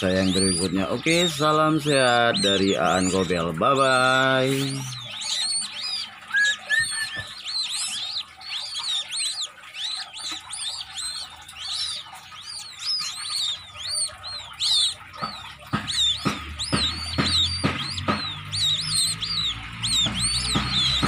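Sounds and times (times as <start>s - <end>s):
chicks peeping: 0.0s - 21.0s
thumps: 10.2s - 21.0s.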